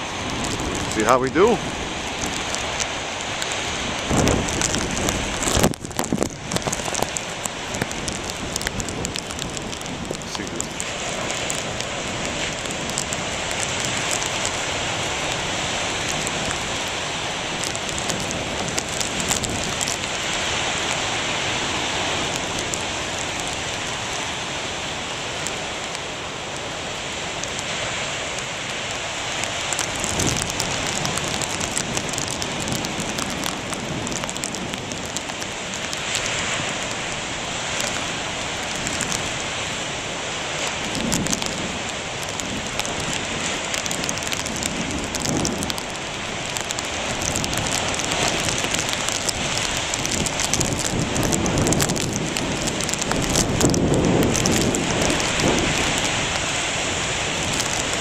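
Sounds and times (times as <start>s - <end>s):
churning water rushing: 0.0s - 58.0s
deep thuds of breaking waves: 4.1s - 6.9s.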